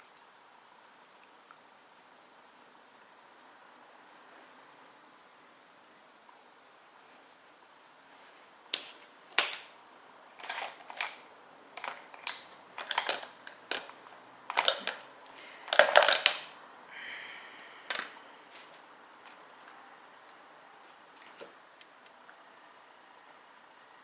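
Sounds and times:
plastic makeup cases clicking: 8.8s - 9.7s, 10.4s - 11.2s, 11.8s - 15.1s, 15.7s - 16.6s, 17.9s - 18.2s.

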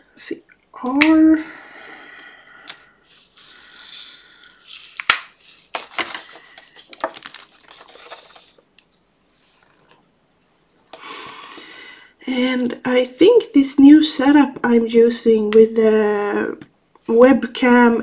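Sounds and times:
plastic beads rattling in a tray: 3.0s - 8.8s.

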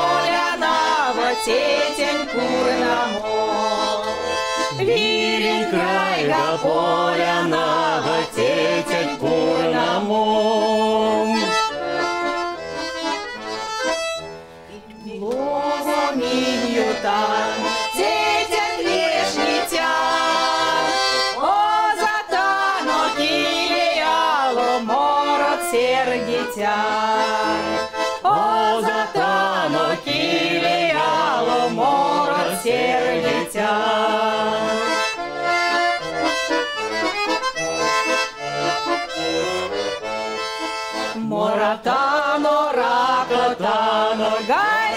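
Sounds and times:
women singing: 0.0s - 11.6s, 14.8s - 35.1s, 41.1s - 44.9s
button accordion playing folk song: 0.0s - 44.9s.

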